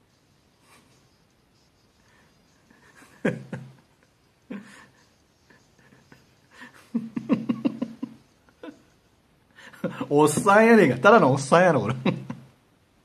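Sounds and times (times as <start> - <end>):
man laughing: 2.7 - 9.0, 9.6 - 10.8, 11.8 - 12.5.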